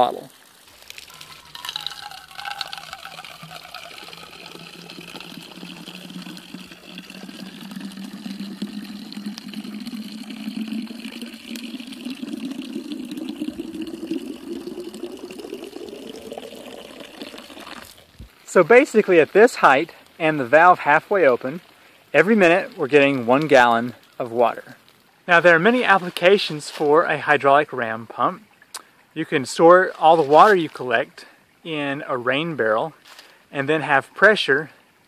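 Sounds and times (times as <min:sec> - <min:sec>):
water pouring into plastic bottle: 0:00.0 - 0:19.2.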